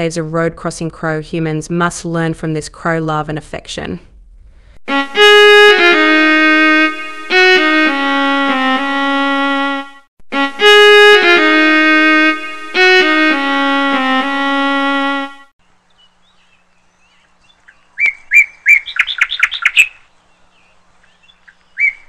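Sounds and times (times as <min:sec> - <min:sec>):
melody of sustained notes: 0:04.9 - 0:15.5.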